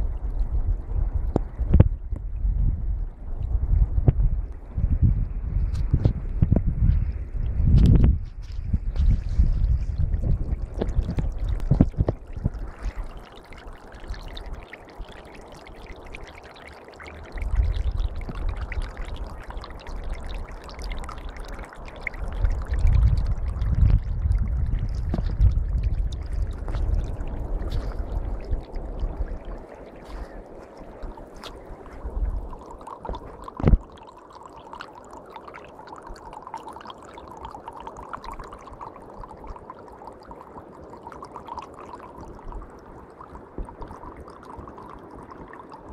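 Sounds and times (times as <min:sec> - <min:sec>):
low rumble on microphone: 0:00.0 - 0:15.2, 0:17.2 - 0:34.0
stream gurgling: 0:00.0 - 0:45.9.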